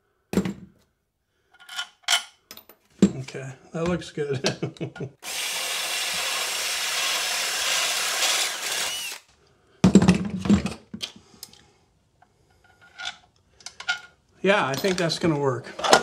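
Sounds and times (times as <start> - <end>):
cordless drill boring: 5.2 - 9.3.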